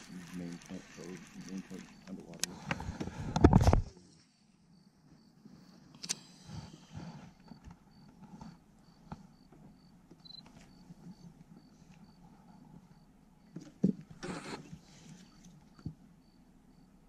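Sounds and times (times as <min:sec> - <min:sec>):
faint high chirp: 0:00.0 - 0:02.3, 0:07.3 - 0:13.6
rough rubbing on lens: 0:14.2 - 0:15.6.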